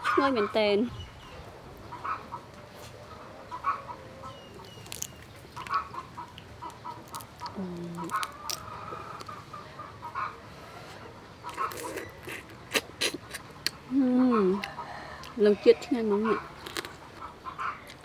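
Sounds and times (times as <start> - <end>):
chickens clucking: 0.0 - 18.0
crab shell cracking: 4.6 - 9.4, 16.6 - 17.0.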